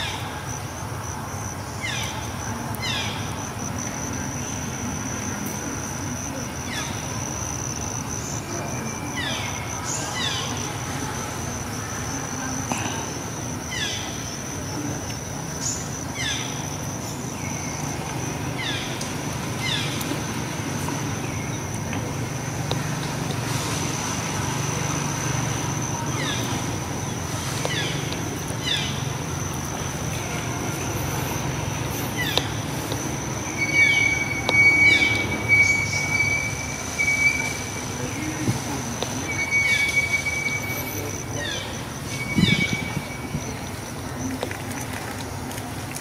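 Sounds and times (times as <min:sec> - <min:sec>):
insect high-pitched trill: 0:02.8 - 0:12.5, 0:23.7 - 0:43.8.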